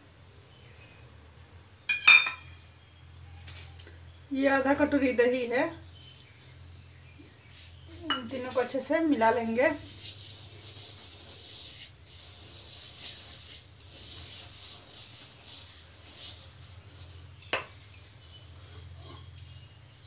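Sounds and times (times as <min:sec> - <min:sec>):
hand rubbing dry mix in bowl: 0:04.4 - 0:20.0.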